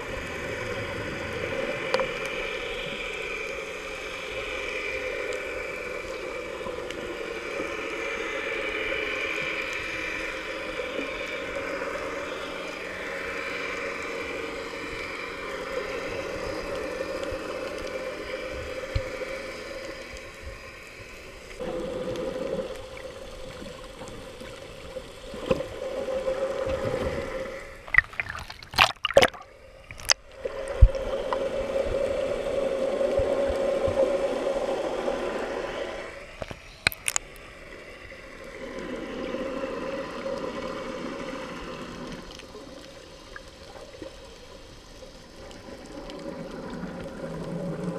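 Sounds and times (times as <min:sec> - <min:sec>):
muffled underwater hum: 0:00.0 - 0:47.9
sharp underwater clicks and pops: 0:27.9 - 0:31.0, 0:36.4 - 0:37.4.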